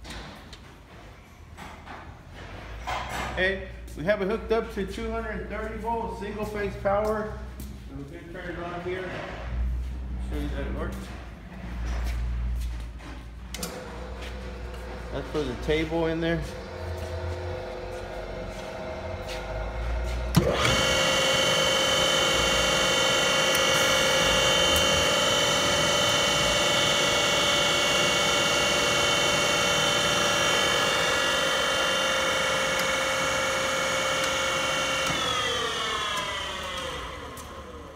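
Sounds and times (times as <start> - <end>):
grinder motor whining: 13.6 - 37.9.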